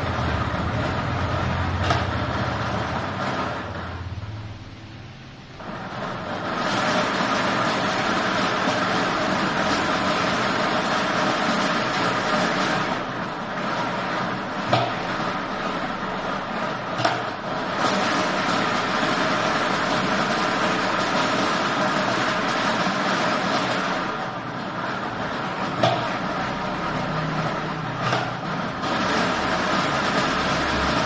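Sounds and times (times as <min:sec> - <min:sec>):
loud single clacks: 0:14.7 - 0:15.0, 0:25.8 - 0:26.1.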